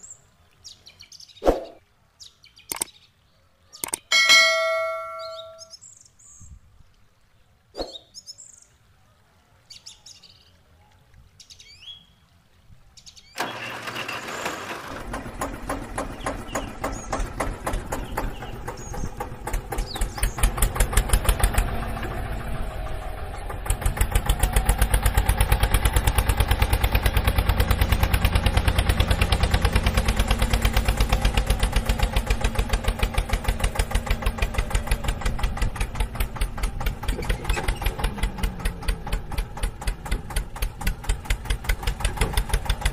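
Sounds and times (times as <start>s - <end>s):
faint bird chirps: 0.0s - 6.7s, 7.4s - 12.2s
tractor engine chugging: 13.4s - 42.9s.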